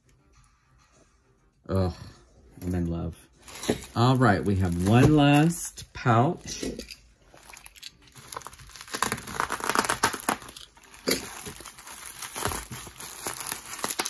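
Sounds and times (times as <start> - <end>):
bubble wrap and plastic bag crinkling: 2.6 - 6.5, 7.2 - 14.0.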